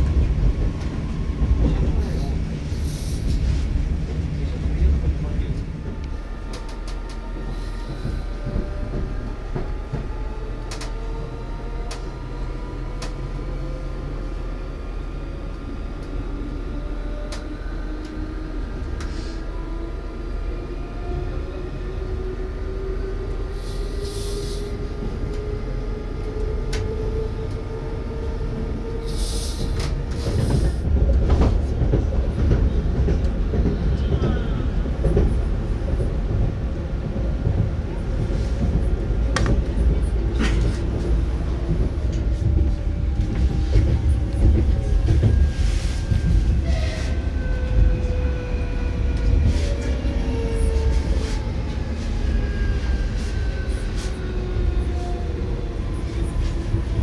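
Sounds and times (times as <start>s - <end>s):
train wheels rumbling on rail: 0.0s - 57.0s
rail-joint clicks: 6.0s - 11.0s.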